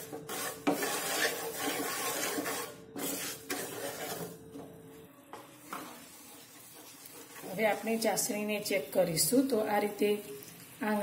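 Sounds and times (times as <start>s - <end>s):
wooden spatula scraping a pan: 0.0s - 4.7s, 5.6s - 8.4s.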